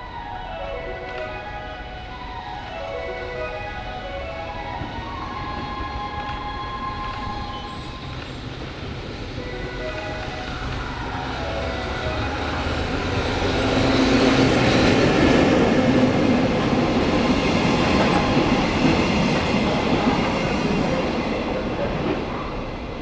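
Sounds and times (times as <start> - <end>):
train rumbling past: 0.0 - 23.0.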